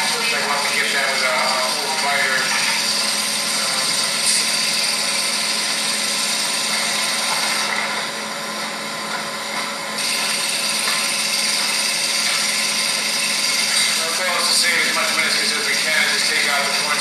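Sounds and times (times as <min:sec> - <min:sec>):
machine whirring with hum and hiss: 0:00.0 - 0:17.0.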